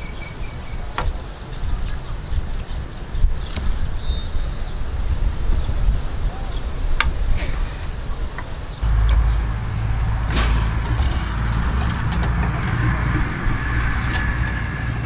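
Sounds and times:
steady low rumble: 0:08.7 - 0:15.0.

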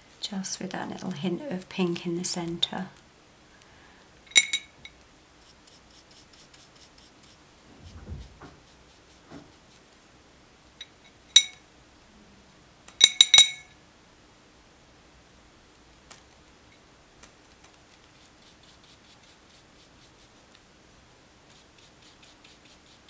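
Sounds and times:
brush clinking on ceramic: 0:04.3 - 0:05.0
brush ticking in paint: 0:05.4 - 0:07.4
dull thump: 0:07.7 - 0:08.6.

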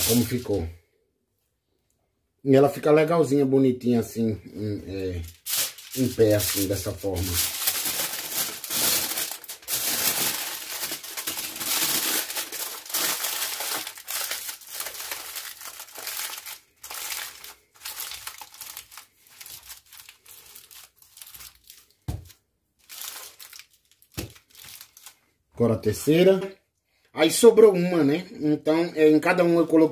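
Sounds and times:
aluminium foil crumpling: 0:00.0 - 0:00.7, 0:05.0 - 0:25.2.

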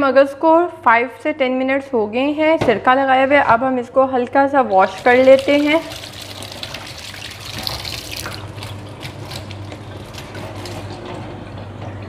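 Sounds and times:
tap water splashing in strainer: 0:04.7 - 0:10.8.

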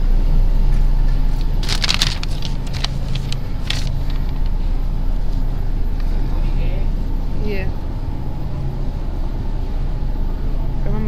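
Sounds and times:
steady low hum: 0:00.0 - 0:11.0
paper rustling and crinkling: 0:01.3 - 0:04.6.

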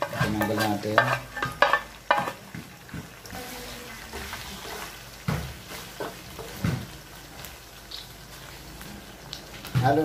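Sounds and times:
wooden spatula stirring: 0:00.0 - 0:03.2
meat sizzling in a wok: 0:00.0 - 0:10.0.

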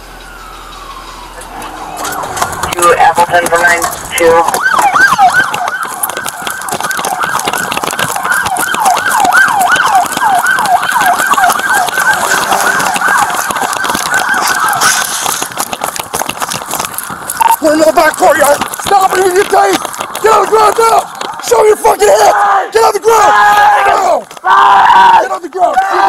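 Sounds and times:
police siren yelping: 0:00.0 - 0:15.9, 0:16.7 - 0:19.6.

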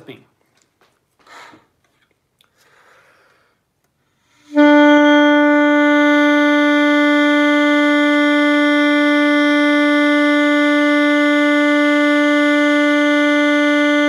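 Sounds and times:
saxophone long note: 0:04.5 - 0:14.0.

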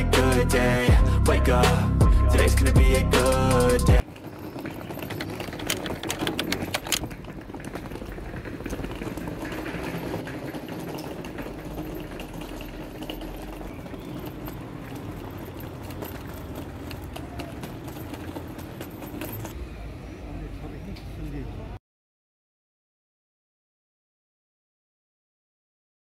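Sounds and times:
background music: 0:00.0 - 0:04.0
street noise: 0:00.0 - 0:21.8
suitcase wheels rattling on paving: 0:03.6 - 0:19.6.

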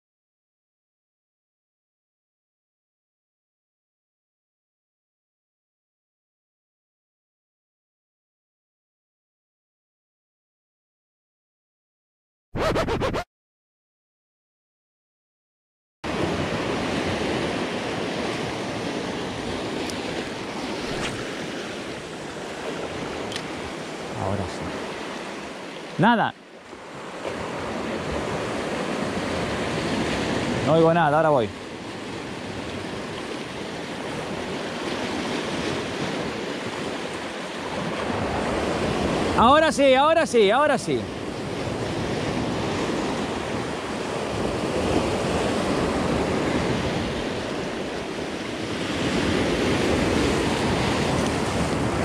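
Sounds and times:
sea surf washing over rocks: 0:16.1 - 0:52.0.

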